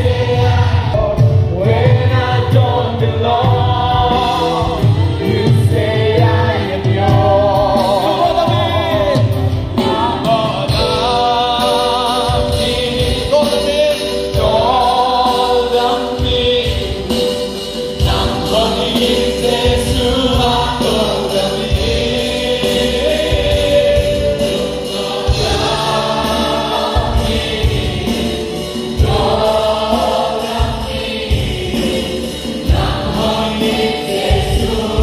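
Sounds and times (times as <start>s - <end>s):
band with steady beat: 0.0s - 35.0s
group singing in chorus: 0.0s - 35.0s.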